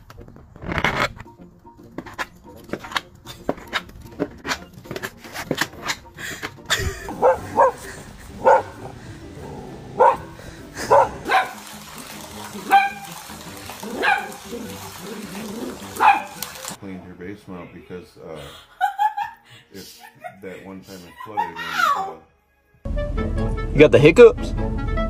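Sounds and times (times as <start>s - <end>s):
dog barking: 7.1s - 9.0s, 9.9s - 11.6s, 12.6s - 13.2s, 13.8s - 16.7s
higher dog call: 12.5s - 16.6s.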